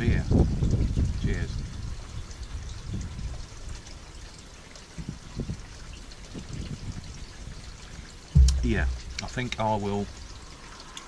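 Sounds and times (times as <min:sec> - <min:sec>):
steady low rumble: 0:08.4 - 0:09.6.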